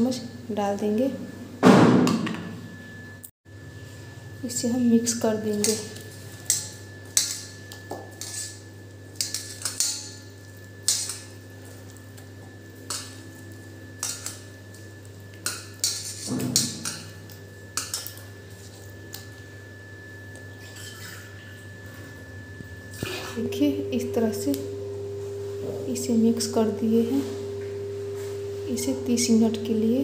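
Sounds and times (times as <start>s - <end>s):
faint steady hum: 16.8s - 30.0s.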